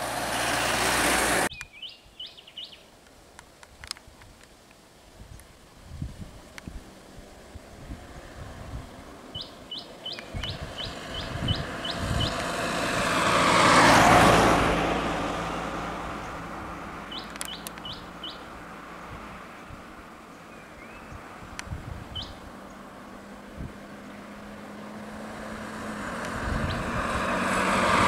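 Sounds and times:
vehicle passing by: 0.0 - 1.5, 6.7 - 28.0
bird chirping: 1.5 - 2.9, 9.3 - 12.5, 17.1 - 18.5, 20.3 - 21.3, 22.1 - 22.9.

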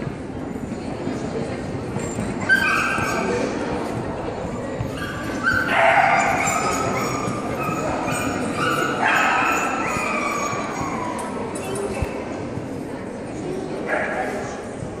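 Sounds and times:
dogs yelping and whining: 2.0 - 3.6, 4.8 - 12.0.

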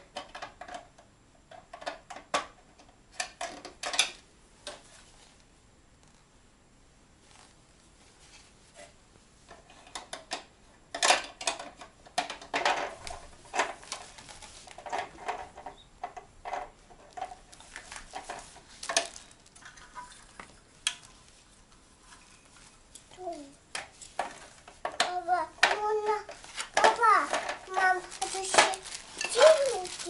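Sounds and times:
small hard objects clattering: 16.4 - 19.6, 24.1 - 30.0.

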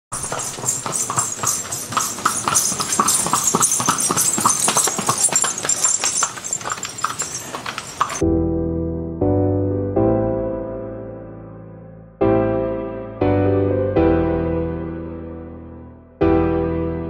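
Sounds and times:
horse hooves clip-clopping on sand: 0.1 - 8.2
soft electric piano music: 8.2 - 17.0.

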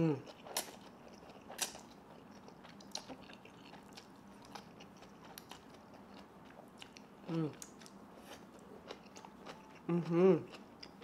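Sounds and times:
quiet chewing: 0.0 - 11.0.

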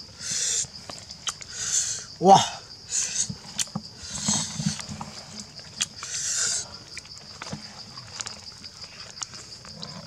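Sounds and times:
high insect drone: 0.0 - 10.0
chewing with lip smacks: 5.5 - 10.0.

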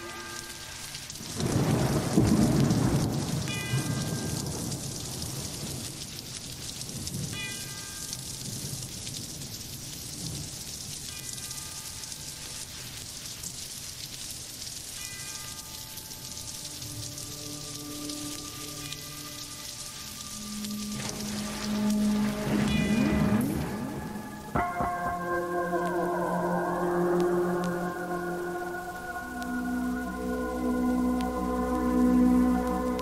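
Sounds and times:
steady rain: 0.0 - 33.0
rolling thunder clap: 1.4 - 5.9, 20.8 - 25.8.

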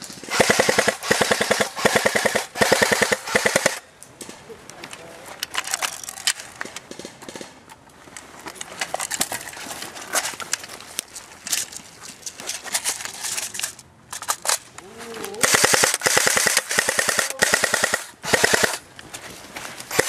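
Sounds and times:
airsoft gun firing rapid bursts: 0.2 - 3.8, 15.4 - 18.8.

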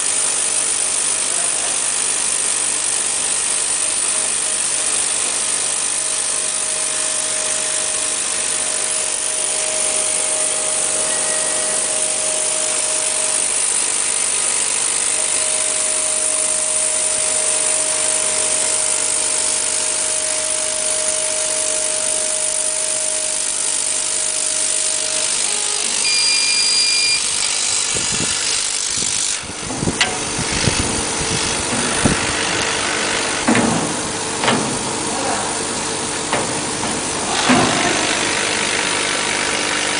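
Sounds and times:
laser cutter hissing and whining: 0.0 - 39.9
short electronic beep: 10.9 - 12.0, 26.0 - 27.9.

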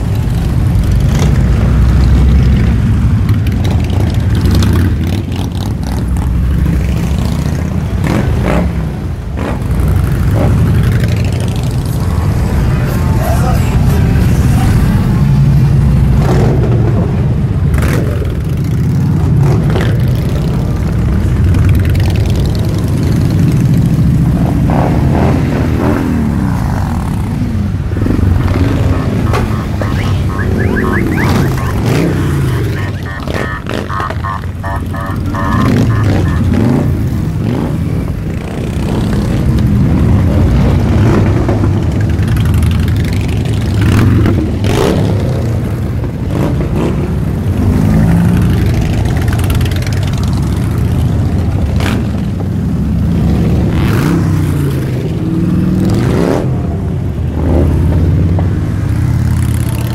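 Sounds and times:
traffic: 0.0 - 59.9
rapid high beeping: 28.4 - 37.2.

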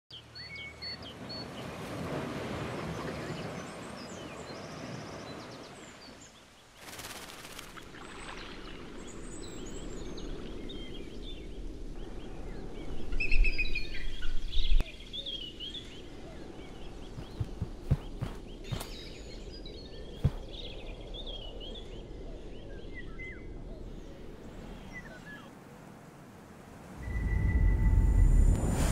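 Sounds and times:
low rumble: 27.0 - 28.9.

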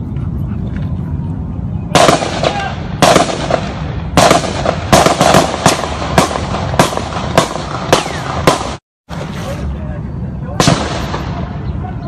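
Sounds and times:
gunshots with echo: 2.0 - 8.8, 10.6 - 11.6.

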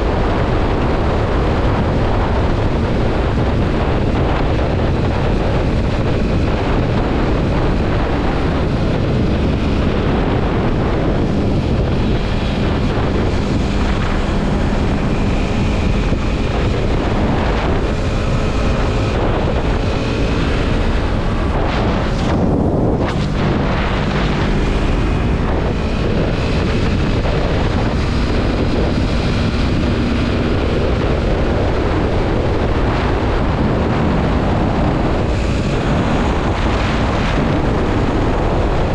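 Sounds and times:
motorcycle engine running: 0.0 - 38.9
wind noise on microphone: 0.0 - 38.9.

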